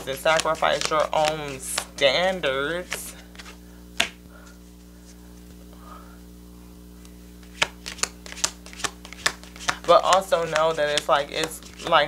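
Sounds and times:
cards snapping while shuffled: 0.0s - 4.2s, 7.4s - 12.0s
low electrical hum: 0.0s - 12.0s.

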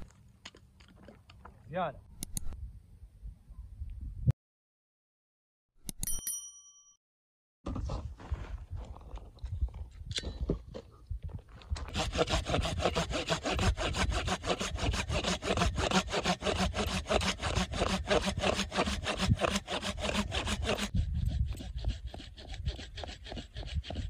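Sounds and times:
saw cutting through wood: 11.9s - 24.0s.

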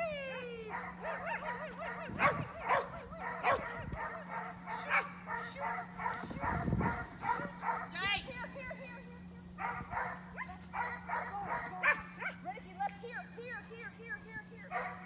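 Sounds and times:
dog yipping: 0.7s - 8.0s, 9.0s - 12.5s, 14.7s - 15.0s.

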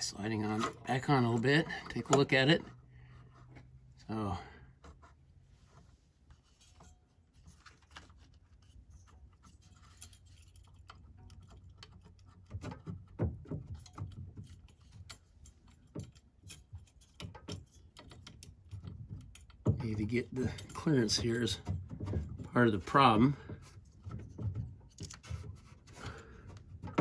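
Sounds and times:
small metal clicks and rattles: 6.6s - 27.0s.

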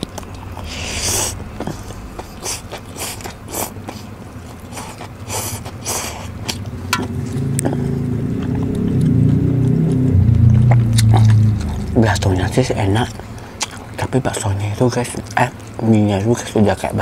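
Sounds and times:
slurping noodles: 0.2s - 6.6s.

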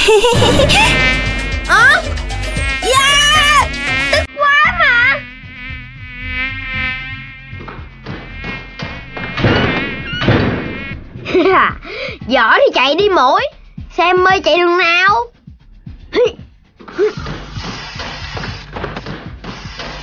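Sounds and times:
mosquito buzzing: 0.1s - 11.9s, 16.8s - 20.0s.

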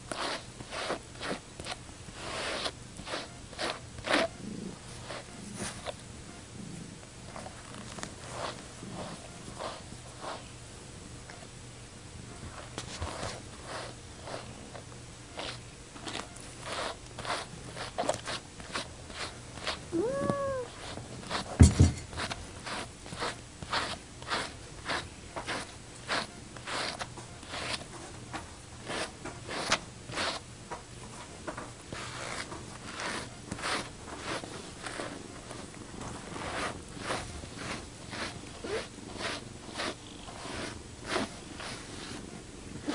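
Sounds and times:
brush stroking cat fur: 0.0s - 6.0s, 7.3s - 10.5s, 12.4s - 42.9s
cat meowing: 19.9s - 20.8s.

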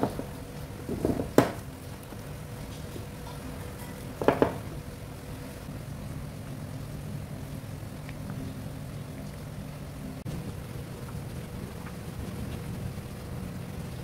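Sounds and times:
sharp knocks: 0.9s - 1.6s, 4.2s - 4.7s
hands slapping dough: 0.9s - 1.7s.

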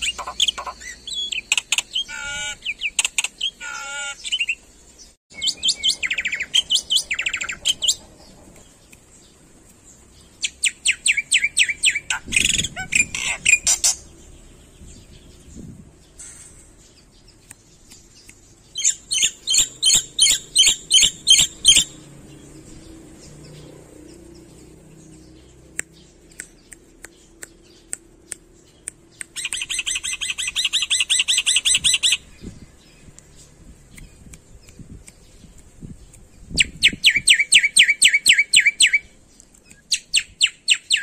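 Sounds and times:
bird sharp clicks: 0.0s - 2.0s, 25.6s - 31.7s
bird calling repeated notes: 0.0s - 4.6s, 18.8s - 22.0s
bird fast chattering: 0.0s - 4.6s, 17.3s - 22.0s.

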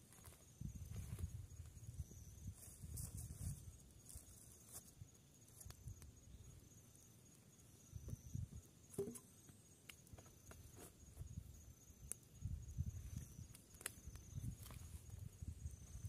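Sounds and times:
night insects chirring: 0.0s - 16.0s
campfire crackling: 11.5s - 12.4s, 13.2s - 15.7s
fire popping: 13.2s - 14.7s.

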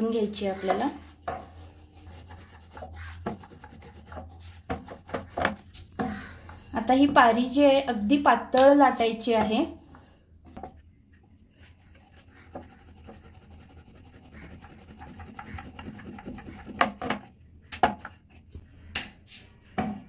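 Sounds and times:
rolling pin rolling dough: 0.2s - 7.4s, 10.5s - 18.5s.

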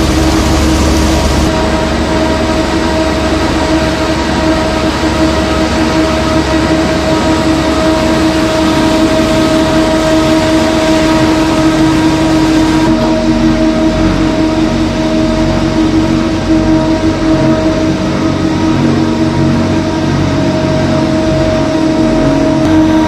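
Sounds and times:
machinery din: 0.0s - 23.0s
rushing noise: 0.0s - 23.0s
whine of fixed tones: 0.0s - 23.0s.

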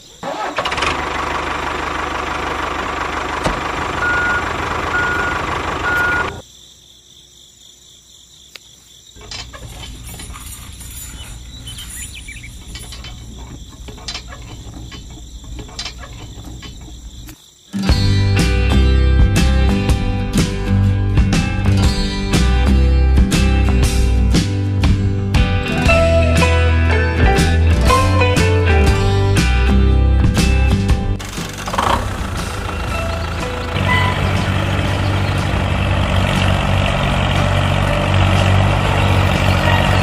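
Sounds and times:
music with bass and plucked notes: 17.8s - 40.0s.

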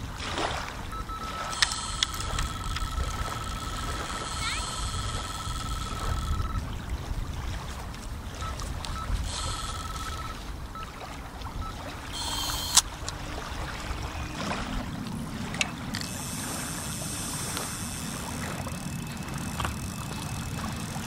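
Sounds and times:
wind buffeting microphone: 0.0s - 12.2s, 12.8s - 21.0s
waves lapping on shore: 0.0s - 21.0s
sharp click: 12.2s - 12.9s.

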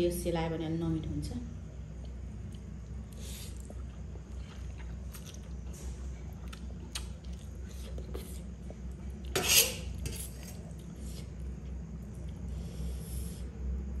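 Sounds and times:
low hum: 0.0s - 14.0s
fork scraping metal plate: 9.4s - 10.4s.

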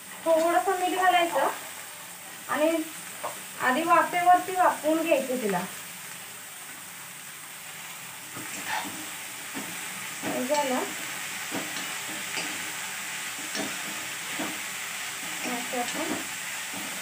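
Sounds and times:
oil sizzling: 0.0s - 17.0s
metal spatula scraping wok: 8.5s - 9.1s.

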